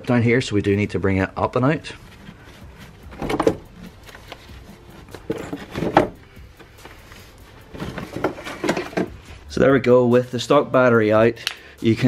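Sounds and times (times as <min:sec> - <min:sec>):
battery case knocking and scraping: 0:02.2 - 0:07.0, 0:07.6 - 0:09.2.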